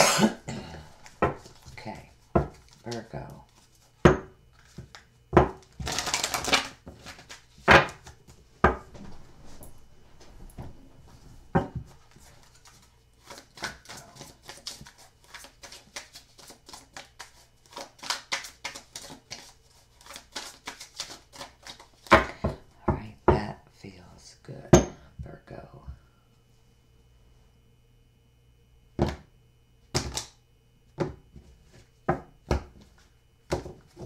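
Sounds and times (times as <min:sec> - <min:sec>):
cards being shuffled: 0:04.5 - 0:08.4, 0:12.0 - 0:22.2.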